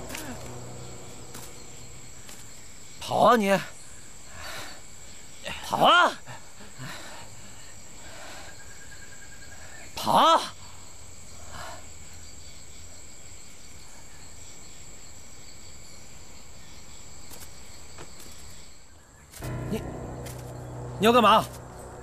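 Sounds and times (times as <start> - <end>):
insects droning: 0.0 - 22.0.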